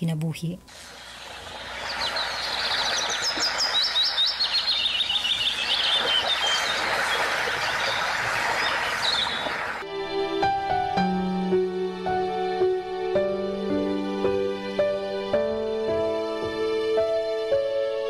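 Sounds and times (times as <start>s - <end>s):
outdoor background hiss: 0.0s - 18.0s
birds chirping: 1.1s - 9.8s.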